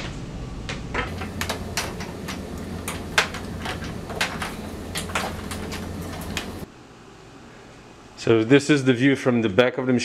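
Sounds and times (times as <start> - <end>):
steady low hum: 1.1 - 8.1.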